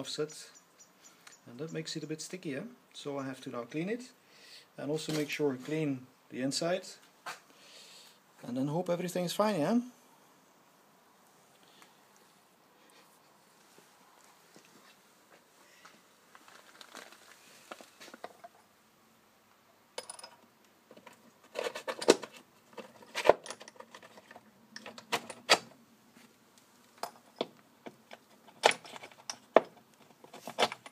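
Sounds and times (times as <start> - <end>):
faint rustle: 11.2 - 18.7
metal parts clicking and clinking: 20.0 - 25.7, 27.0 - 30.9.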